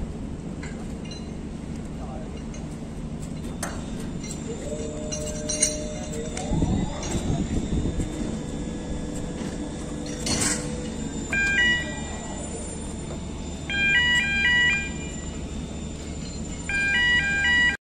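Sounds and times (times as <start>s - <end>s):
low machinery rumble: 0.0s - 17.8s
electronic beeping tune: 11.3s - 12.2s, 13.7s - 15.3s.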